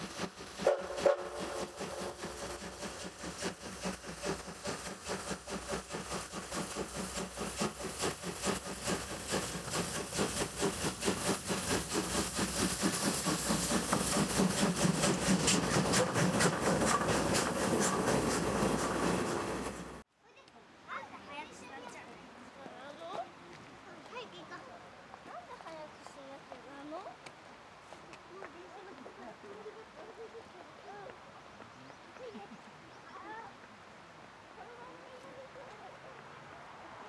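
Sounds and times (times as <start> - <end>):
steam locomotive exhaust beats: 0.0 - 20.0
train wheels clattering on track: 0.0 - 20.0.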